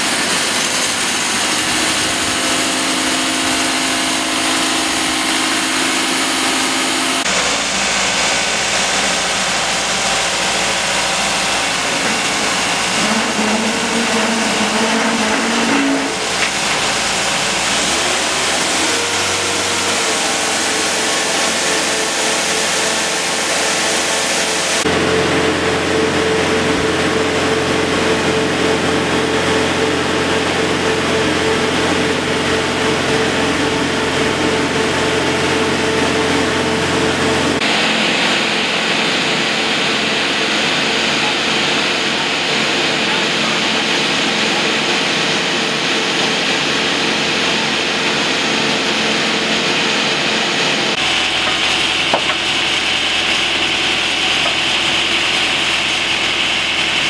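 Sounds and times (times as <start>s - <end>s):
engine running: 0.0s - 57.0s.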